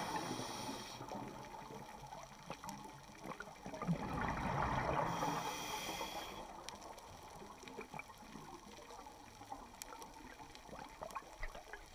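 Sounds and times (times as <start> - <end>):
faint clicks: 6.6 - 11.9.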